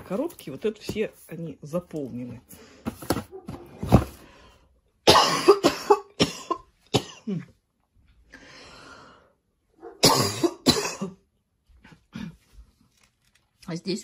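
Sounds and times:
woman coughing: 5.1 - 7.6, 10.0 - 11.3
woman breathing: 8.2 - 9.6.

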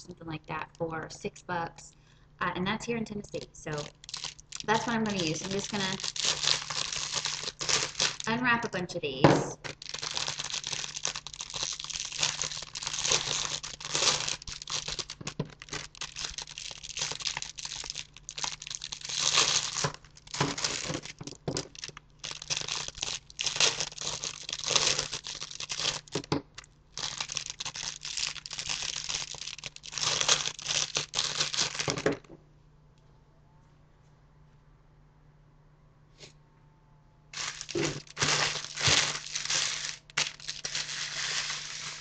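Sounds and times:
faint hum: 0.0 - 42.0
foil wrappers crinkling: 3.3 - 8.4, 9.6 - 32.2, 37.4 - 42.0.

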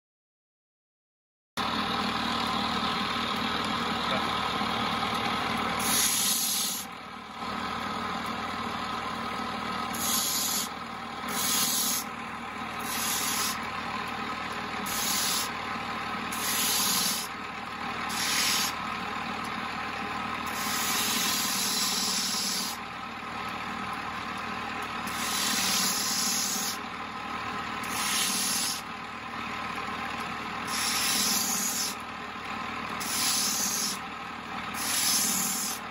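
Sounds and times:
grinding disc motor hum: 1.6 - 35.9
crystal rasping on grinding disc: 5.8 - 7.0, 9.9 - 12.1, 12.7 - 13.7, 14.8 - 15.6, 16.3 - 17.4, 18.1 - 18.8, 20.4 - 22.8, 25.0 - 26.8, 27.8 - 28.9, 30.6 - 32.1, 32.9 - 34.1, 34.7 - 35.9.

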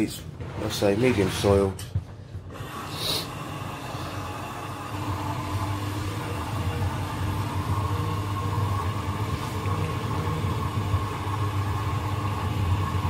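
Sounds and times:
washing machine humming: 0.0 - 13.0.

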